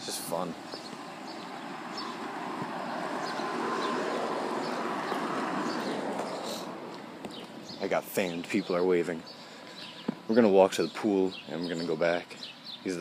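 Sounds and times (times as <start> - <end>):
golf cart driving past: 0.8 - 7.8.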